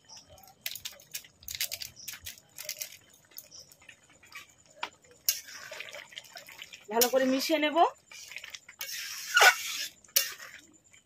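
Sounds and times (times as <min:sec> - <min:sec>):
curry bubbles popping: 0:00.2 - 0:08.8.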